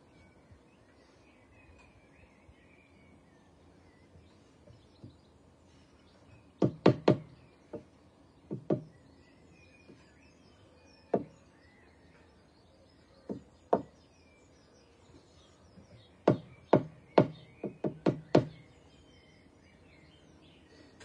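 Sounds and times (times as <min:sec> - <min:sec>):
hammer knocking on timber: 0:06.6 - 0:07.9, 0:08.5 - 0:08.9, 0:11.1 - 0:11.3, 0:13.3 - 0:13.9, 0:16.3 - 0:18.6.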